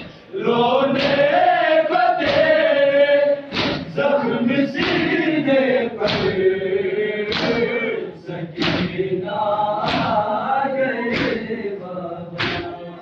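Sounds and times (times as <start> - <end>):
men chanting in unison: 0.0 - 13.0
hands striking chests: 3.5 - 3.9.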